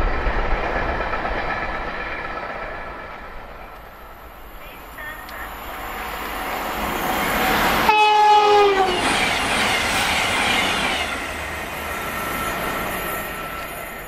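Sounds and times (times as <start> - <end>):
train passing at speed: 0.0 - 14.0
train horn: 7.5 - 9.4.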